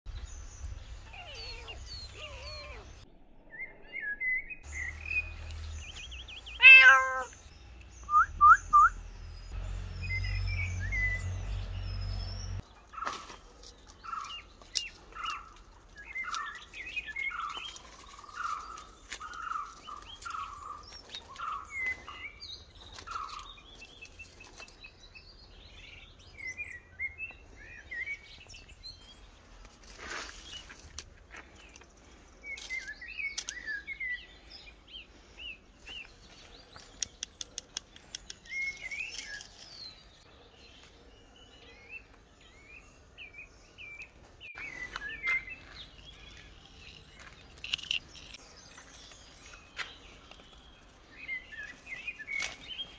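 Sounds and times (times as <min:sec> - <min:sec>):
birds chirping: 0:00.1 - 0:52.9
cat meowing: 0:06.6 - 0:07.4.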